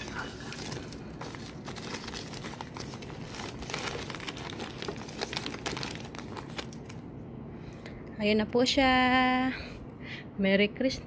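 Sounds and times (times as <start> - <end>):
wrapping paper crinkling: 0.0 - 7.1.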